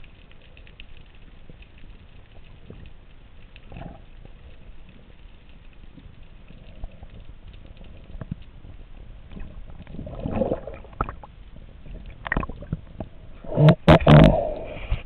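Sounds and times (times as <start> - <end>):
underwater gurgling: 0.0 - 15.0
underwater clicks: 9.3 - 15.0.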